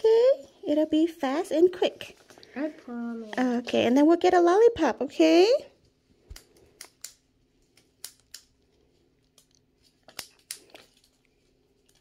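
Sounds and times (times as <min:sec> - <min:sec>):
syringe and wrapping rustling: 0:05.9 - 0:12.0.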